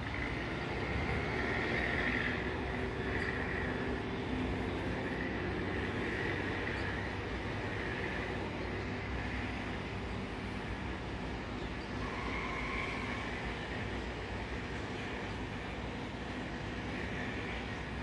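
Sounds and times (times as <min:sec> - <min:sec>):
jet engines whining: 0:00.0 - 0:18.0.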